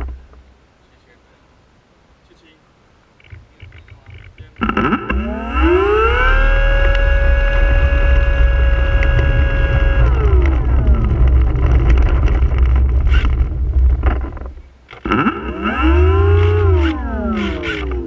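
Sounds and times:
model plane propeller motor whine: 4.6s - 18.0s.

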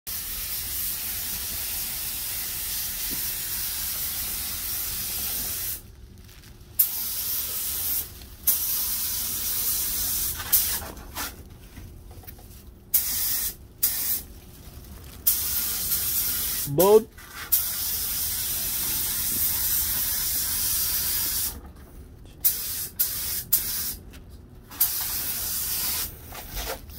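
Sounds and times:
paint spray gun hissing: 6.8s - 10.8s, 12.9s - 14.2s, 15.2s - 16.7s, 17.5s - 21.6s, 22.4s - 24.0s, 24.7s - 26.1s.

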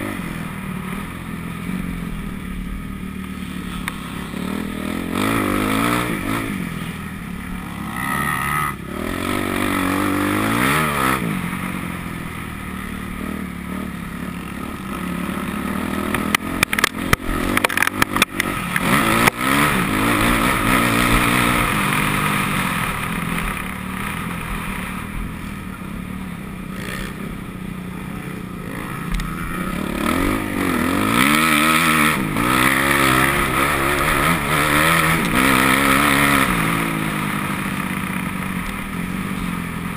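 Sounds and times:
motocross bike engine revving: 0.0s - 39.9s
sharp knocks and clatter: 16.1s - 18.5s.

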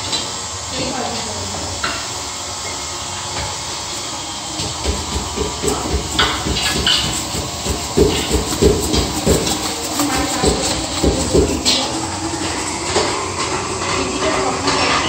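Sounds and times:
liquid nitrogen hissing: 0.0s - 15.0s
knocks and clatter: 4.6s - 14.0s.

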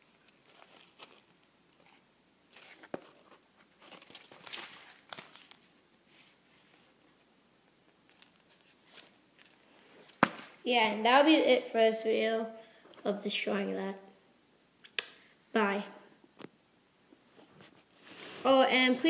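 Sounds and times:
cardboard and tape crinkling: 0.0s - 7.2s, 7.9s - 10.6s.

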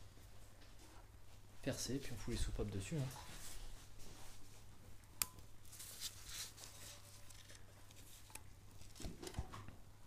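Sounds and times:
gloved hands rustling: 3.0s - 9.1s.

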